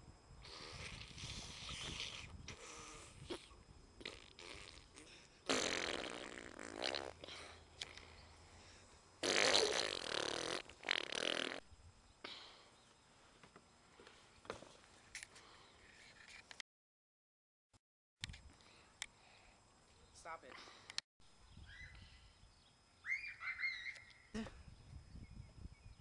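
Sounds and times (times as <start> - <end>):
loud fart noises: 0.4 - 7.3, 9.2 - 11.7.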